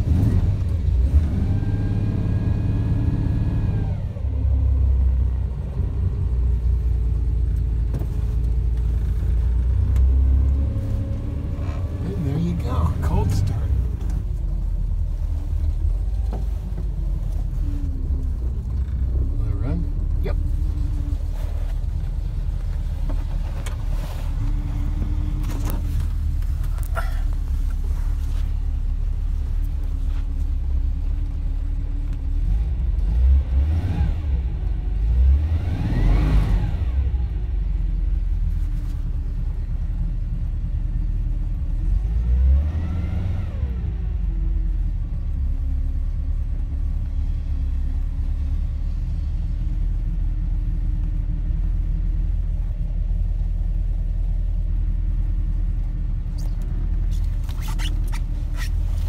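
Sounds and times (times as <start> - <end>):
engine revving: 0.0 - 5.0, 32.3 - 37.4, 41.8 - 44.2
car engine idling: 2.0 - 33.2.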